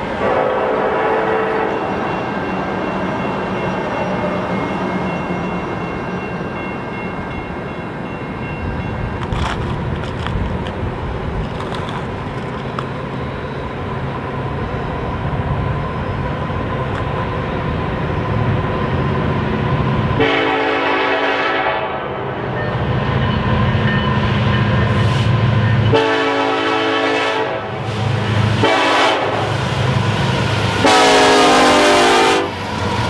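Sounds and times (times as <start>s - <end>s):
train air horn: 0.2s - 2.0s, 20.2s - 22.3s, 25.9s - 28.0s, 28.6s - 29.6s, 30.8s - 32.6s
diesel locomotive rumble: 6.6s - 33.0s.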